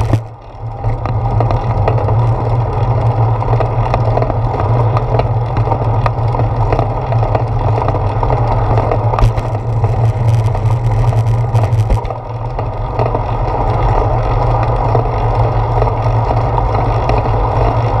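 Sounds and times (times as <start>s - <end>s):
wind buffeting microphone: 0.0s - 0.3s
tyre and road noise: 0.0s - 18.0s.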